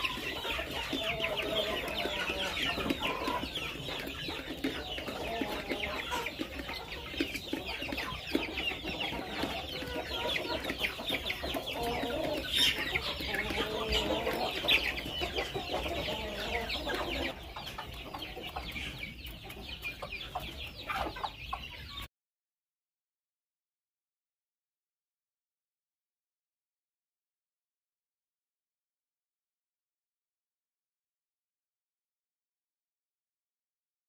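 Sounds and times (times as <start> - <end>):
chicks clucking and cheeping: 0.0 - 22.1.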